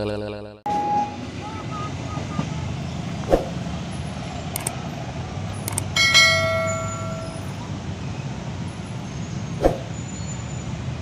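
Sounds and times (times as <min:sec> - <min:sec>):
motorcycle engines idling: 0:01.2 - 0:09.2
sharp clicks: 0:04.5 - 0:04.8, 0:05.6 - 0:05.9
bright bell ding: 0:06.0 - 0:07.6.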